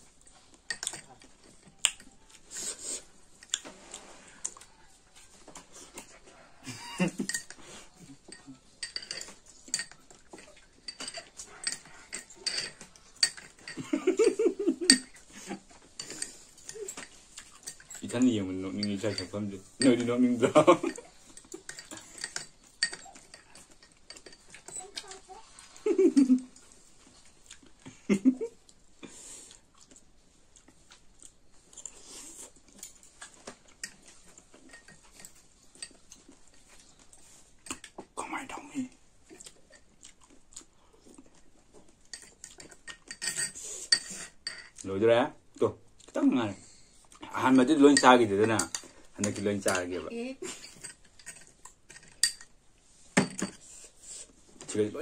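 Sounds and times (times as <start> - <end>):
cutlery clinking against glass bowl: 0.7 - 2.2, 7.0 - 25.3, 32.8 - 37.0, 42.0 - 44.8, 47.8 - 49.9, 50.5 - 52.6, 53.2 - 53.7
chewing soft juicy fruit: 26.6 - 27.8, 28.6 - 34.7, 38.9 - 42.8.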